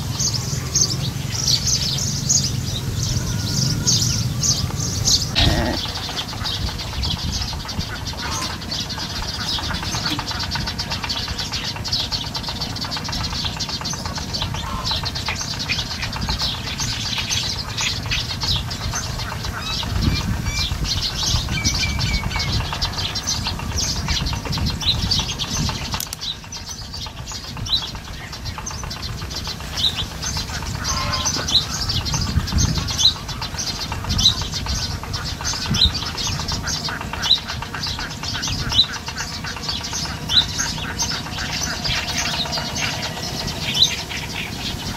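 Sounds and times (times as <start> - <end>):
wind on microphone: 0.0 - 11.4, 14.5 - 44.9
small birds chirping: 0.0 - 44.9.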